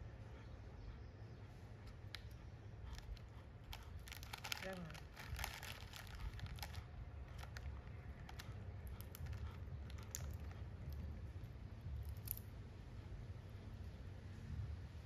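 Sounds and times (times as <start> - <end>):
steady low hum: 0.0 - 15.0
plastic wrapper crinkling: 3.7 - 8.5.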